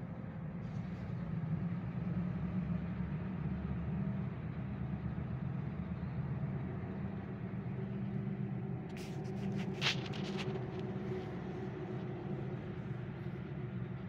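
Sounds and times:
car engine rumble: 3.7 - 14.0.

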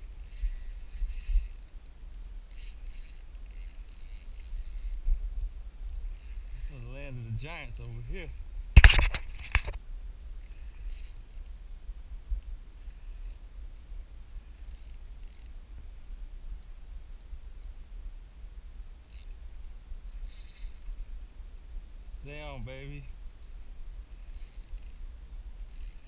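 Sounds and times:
spinning reel clicking: 0.0 - 5.0, 5.9 - 8.7, 10.4 - 11.6, 14.5 - 15.6, 19.0 - 19.4, 20.1 - 21.4, 22.3 - 26.0
low steady rumble: 0.0 - 26.0.

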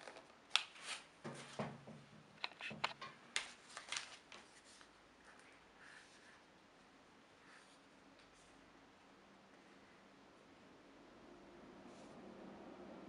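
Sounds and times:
plastic packaging rustling: 3.4 - 4.9.

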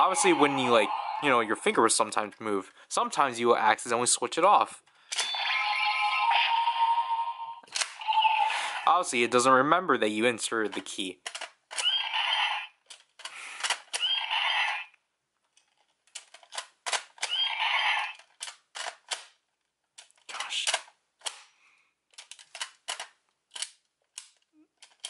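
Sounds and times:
toy speaker electronic sound effect: 0.0 - 1.6, 5.2 - 8.9, 11.8 - 12.8, 14.0 - 14.9, 17.2 - 18.2
plastic clicks: 11.2 - 12.0, 22.1 - 25.0.

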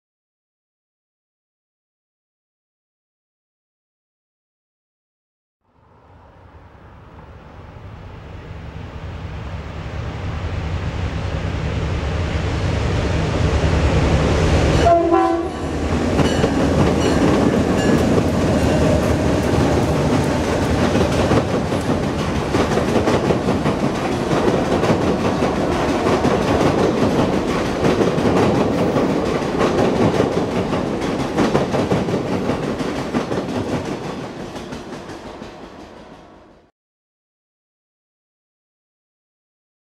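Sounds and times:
diesel locomotive engines rumbling: 5.8 - 36.6
short horn note: 14.8 - 15.8
train wheels clattering: 15.7 - 36.2.

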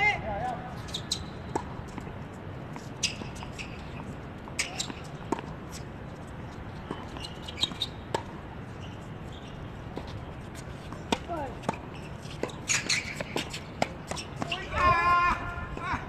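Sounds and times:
tennis ball bouncing on hard court: 0.8 - 2.1, 2.7 - 5.8, 6.8 - 9.0, 10.8 - 14.6.

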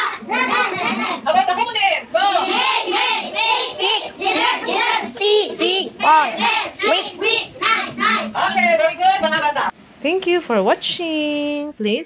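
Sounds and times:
children chanting words in unison: 0.0 - 1.3, 2.3 - 8.6.

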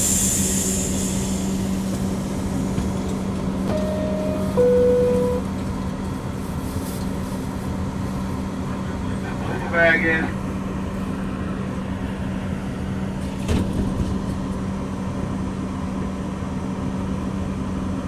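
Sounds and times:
two-tone descending door chime: 3.7 - 5.5.

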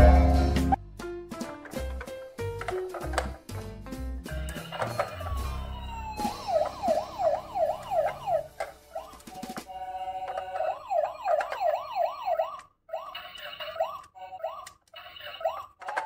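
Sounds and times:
toy electronic siren yelping: 4.4 - 16.0.

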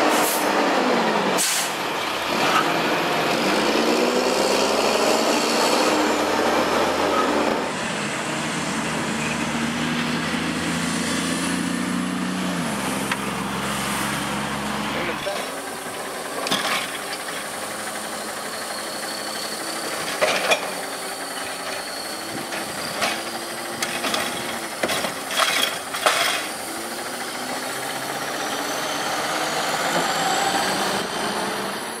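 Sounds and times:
truck engine whine pulling away: 0.0 - 32.0
garbage truck idling: 12.3 - 32.0.

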